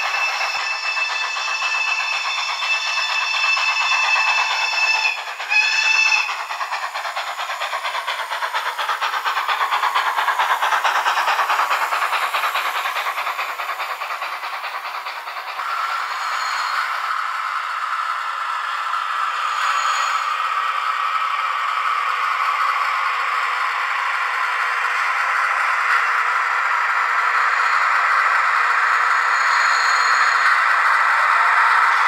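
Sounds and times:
steam whistle blasts: 0.0s - 6.4s
steam locomotive chuffing: 0.0s - 32.0s.

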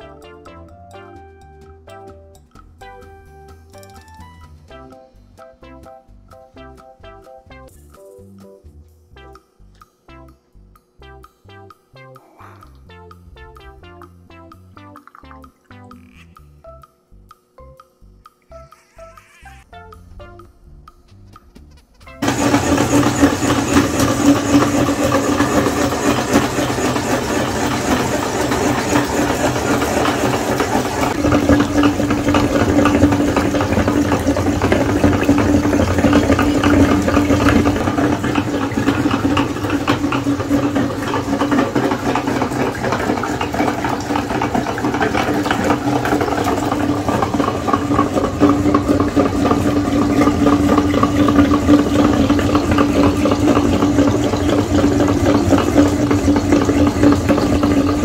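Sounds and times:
meat grinder humming: 22.2s - 58.0s.

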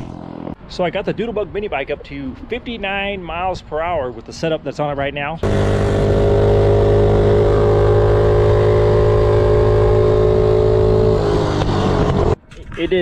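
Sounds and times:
minibike engine at full throttle: 0.0s - 0.6s, 5.4s - 12.4s.

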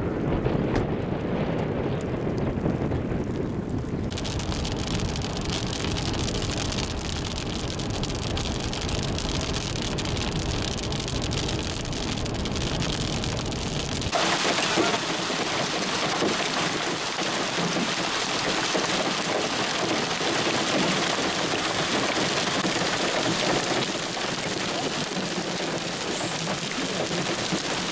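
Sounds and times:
low rumble: 0.0s - 14.2s
hail and rain on pavement: 0.0s - 27.9s
rain and hail on windshield: 0.2s - 27.9s.

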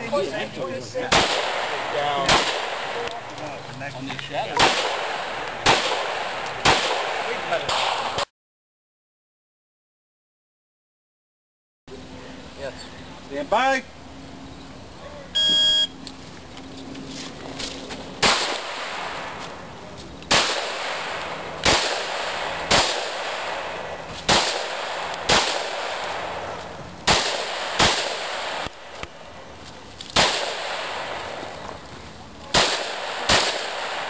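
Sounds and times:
pistol shots with echo: 1.0s - 3.1s, 4.6s - 8.2s, 18.2s - 19.3s, 20.3s - 26.4s, 27.1s - 28.7s, 30.2s - 31.4s, 32.5s - 34.0s.

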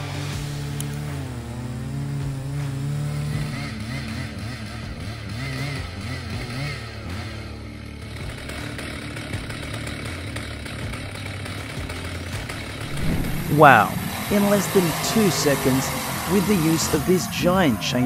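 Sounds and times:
chainsaw running under load: 5.3s - 12.9s, 13.6s - 17.9s.

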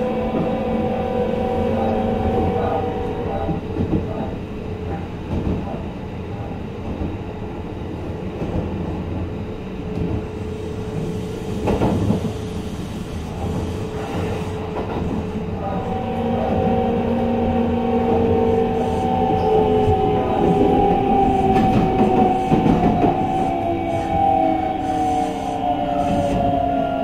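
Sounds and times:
train wheels rumbling on rails: 0.0s - 27.0s
train clunk: 2.7s - 7.2s, 11.0s - 12.5s, 13.3s - 15.9s, 18.1s - 24.3s.

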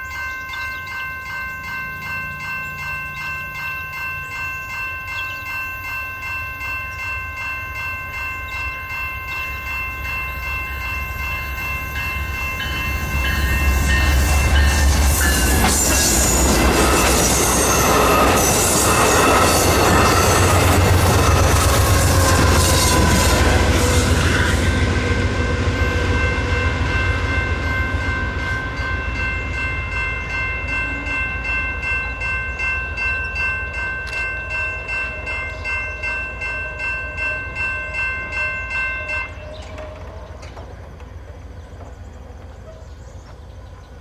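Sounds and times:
crossing bells ringing: 0.0s - 41.8s
diesel locomotive rumble: 9.6s - 44.0s.

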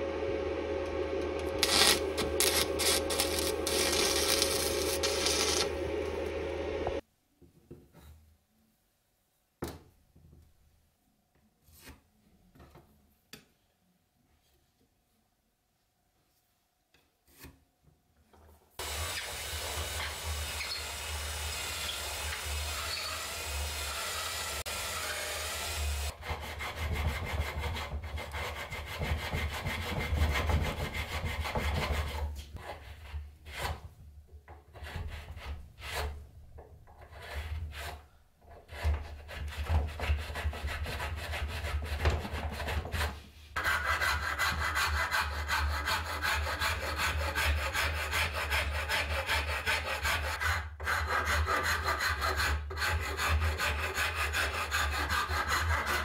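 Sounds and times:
rasping strokes: 1.2s - 7.0s, 37.0s - 56.0s
file strokes on wood: 1.4s - 5.8s, 18.8s - 34.0s, 34.7s - 36.2s, 36.9s - 56.0s
tool scraping wood: 1.4s - 5.8s, 18.8s - 56.0s.

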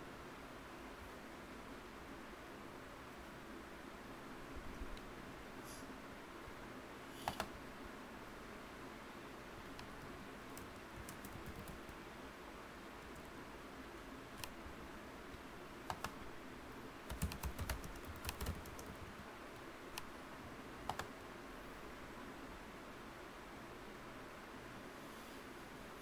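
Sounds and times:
faint steady hiss: 0.0s - 26.0s
typing on keyboard: 7.2s - 7.5s, 10.5s - 12.0s, 15.9s - 16.2s, 17.1s - 19.2s, 20.8s - 21.1s.

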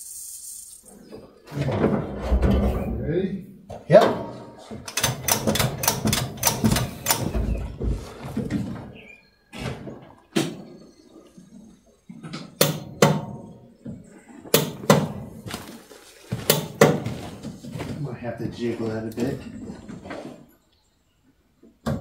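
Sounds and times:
knocks and clatter: 1.5s - 3.0s, 3.7s - 10.8s, 16.4s - 18.0s.

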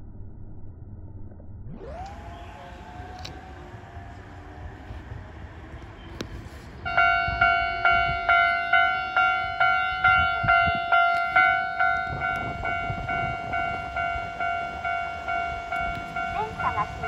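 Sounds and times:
level-crossing alarm bell ringing: 6.8s - 17.0s.

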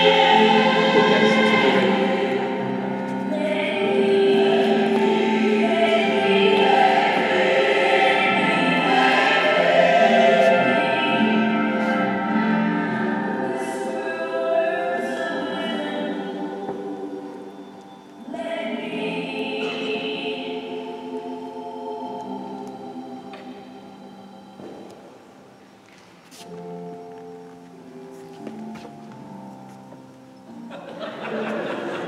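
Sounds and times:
group of voices singing: 0.0s - 23.9s
backing music: 0.0s - 32.0s.

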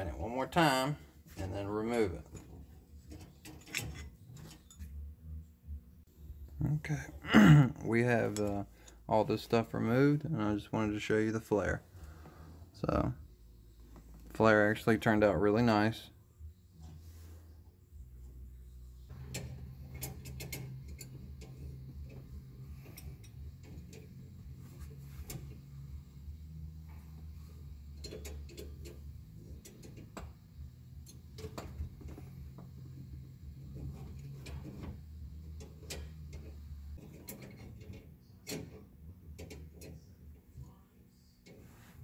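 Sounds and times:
low steady hum: 0.0s - 42.0s.

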